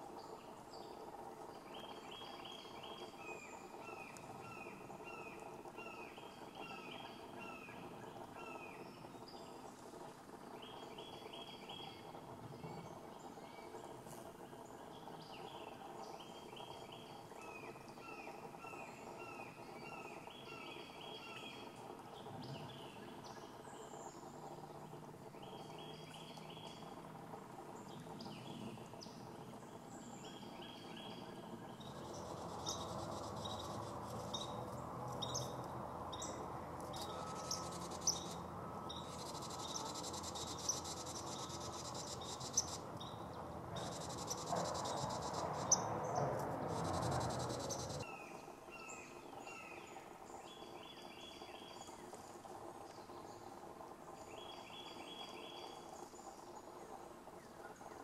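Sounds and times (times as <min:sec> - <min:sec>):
small birds calling: 0:00.0 - 0:53.6
insects chirping: 0:23.2 - 0:48.1.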